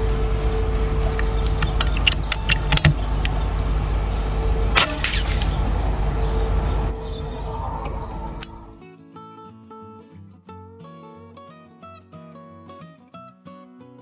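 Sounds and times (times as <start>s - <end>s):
crickets chirping: 0.0s - 8.8s
low rumble: 0.1s - 8.8s
light clicks: 1.0s - 3.4s
air rifle shot: 4.7s - 6.2s.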